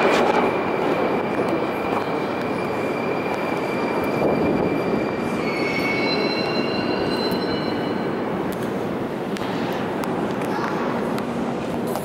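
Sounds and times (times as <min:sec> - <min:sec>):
train rumble: 0:00.0 - 0:12.0
wheel squeal: 0:02.0 - 0:08.2.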